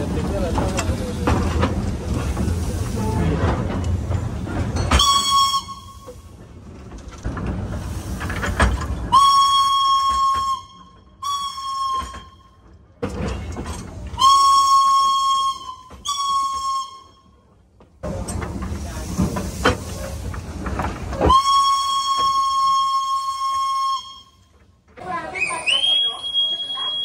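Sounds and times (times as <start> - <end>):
locomotive rumble and hiss: 0.0 - 27.0
steam whistle blasts: 4.9 - 6.1, 9.1 - 12.4, 14.2 - 17.2, 21.3 - 24.4.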